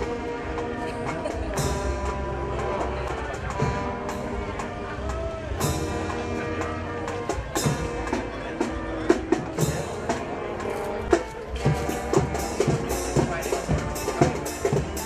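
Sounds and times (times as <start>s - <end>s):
marching band brass: 0.0s - 15.0s
snare and bass drums: 0.0s - 15.0s.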